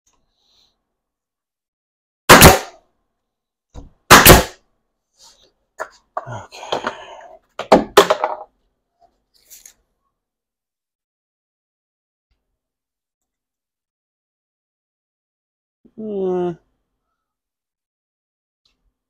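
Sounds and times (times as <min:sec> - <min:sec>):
nail gun shots: 0:02.3 - 0:02.8, 0:04.1 - 0:04.6.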